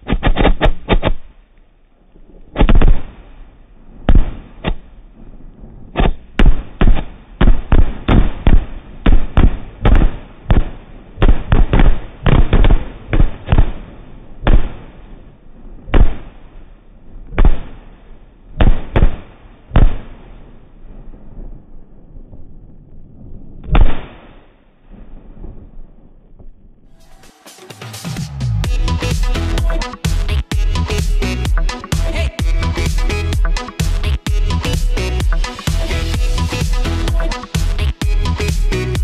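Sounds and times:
firework shells bursting: 0:00.0 - 0:01.6, 0:02.2 - 0:16.7.

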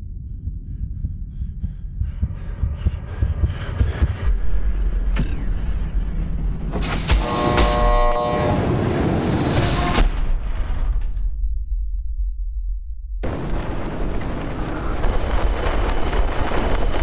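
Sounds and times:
deep bass: 0:00.0 - 0:06.9, 0:10.0 - 0:13.3
low rumble: 0:00.0 - 0:07.4, 0:08.0 - 0:17.0.

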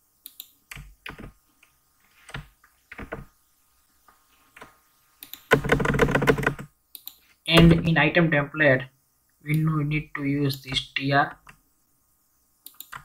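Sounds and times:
computer keyboard keystrokes: 0:12.7 - 0:13.0.

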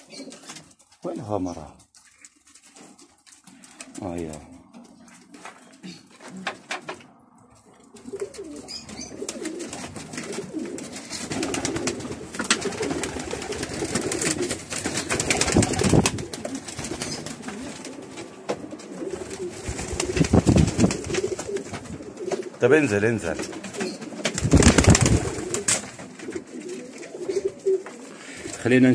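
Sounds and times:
pigeons cooing: 0:00.0 - 0:01.0, 0:02.3 - 0:28.8
wings flapping and scuffling: 0:00.0 - 0:28.9
sharp clicks and rustles: 0:01.8 - 0:22.6.

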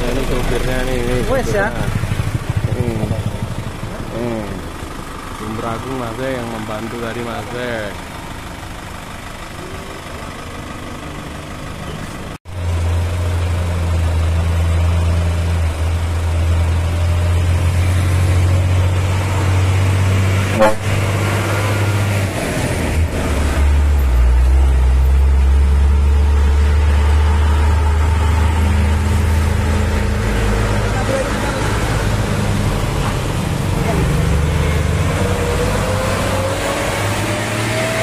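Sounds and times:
diesel truck engines labouring: 0:00.0 - 0:38.0
short horn toot: 0:20.5 - 0:21.1.

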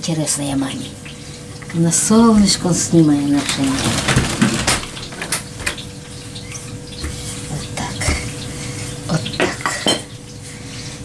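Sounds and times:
utensils clinking on a table: 0:03.2 - 0:07.2, 0:09.3 - 0:10.2.

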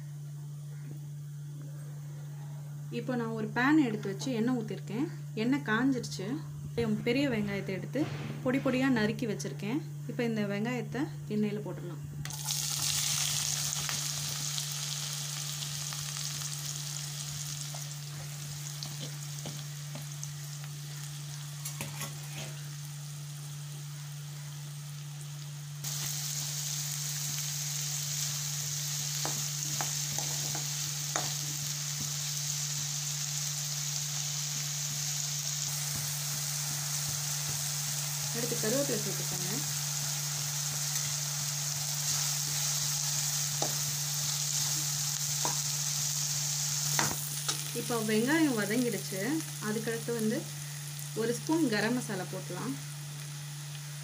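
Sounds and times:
low hum: 0:04.8 - 0:12.4
onions sizzling in hot oil: 0:12.2 - 0:54.0.

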